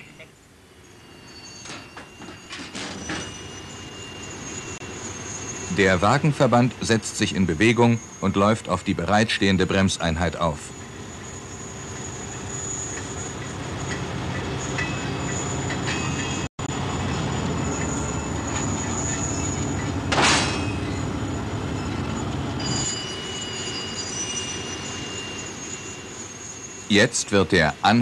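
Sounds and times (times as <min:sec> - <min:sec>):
freight wagons rumbling: 0:00.0 - 0:28.0
high-pitched wheel squeal: 0:00.8 - 0:27.4.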